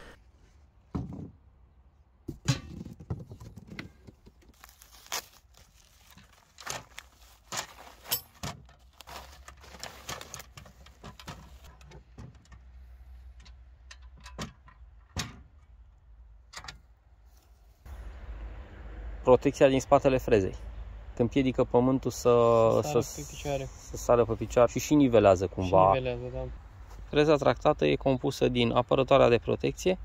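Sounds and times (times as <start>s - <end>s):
packaging rustling: 4.6s - 11.7s
metal parts clinking: 7.5s - 8.7s.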